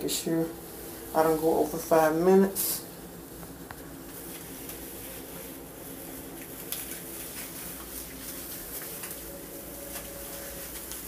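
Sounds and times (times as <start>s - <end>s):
steady hum: 0.0s - 11.0s
gloved hands squishing cream: 3.4s - 11.0s.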